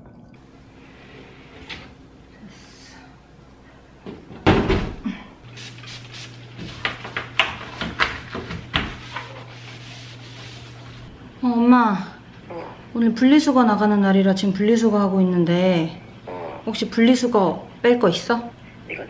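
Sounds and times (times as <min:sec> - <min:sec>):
low steady hum: 0:00.0 - 0:19.0
cupboard door thudding shut: 0:04.4 - 0:05.0.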